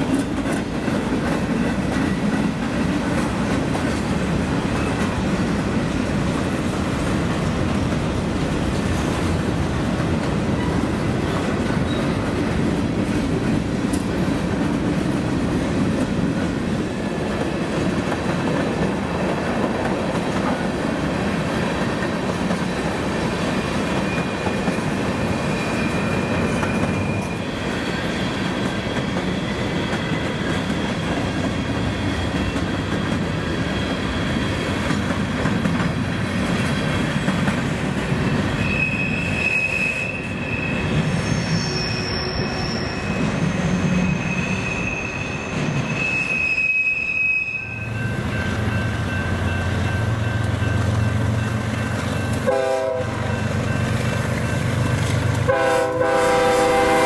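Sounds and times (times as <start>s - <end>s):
freight train wheels clattering: 0.0s - 38.7s, 47.7s - 57.0s
train wheels squealing: 4.2s - 5.5s, 10.4s - 12.6s, 21.1s - 55.7s.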